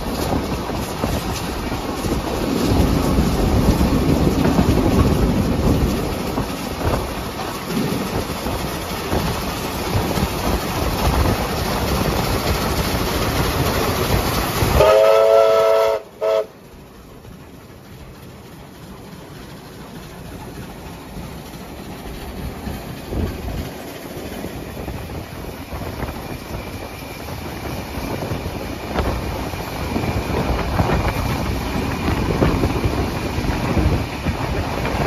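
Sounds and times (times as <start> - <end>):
train wheels rumbling on rails: 0.0 - 35.0
steam locomotive whistle: 14.7 - 16.6.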